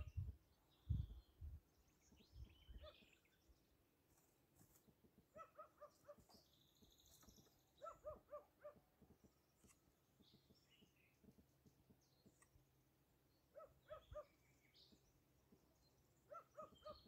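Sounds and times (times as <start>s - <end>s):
faint high bird twitter: 0.0s - 3.7s, 5.3s - 12.6s, 13.3s - 17.0s
distant dog yapping: 16.3s - 17.0s.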